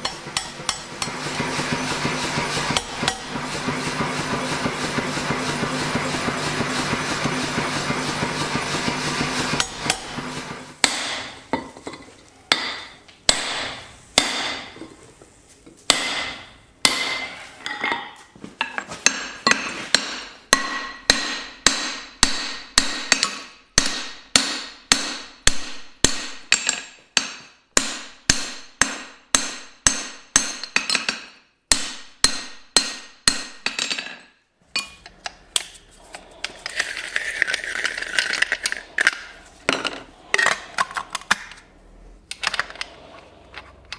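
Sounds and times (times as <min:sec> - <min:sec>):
power hammer pounding steel: 0:00.0 - 0:11.5, 0:12.5 - 0:14.8, 0:15.9 - 0:17.3, 0:20.0 - 0:26.6, 0:27.2 - 0:30.7.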